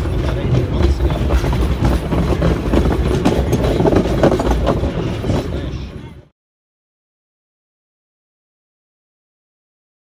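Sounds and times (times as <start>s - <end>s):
rail joint clicks: 0.0s - 5.8s
train wheels rumbling on rails: 0.0s - 6.3s.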